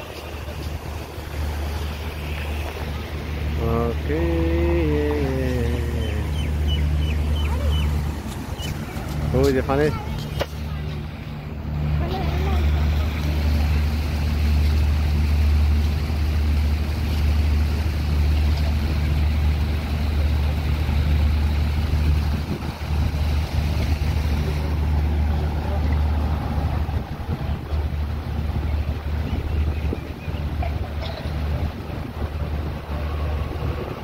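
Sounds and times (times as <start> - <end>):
road traffic rumble: 0.0 - 34.0.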